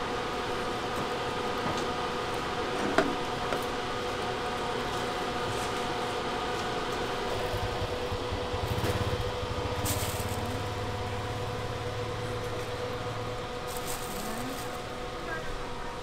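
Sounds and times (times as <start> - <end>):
mechanical hum: 0.0 - 16.0
low engine hum: 6.7 - 15.2.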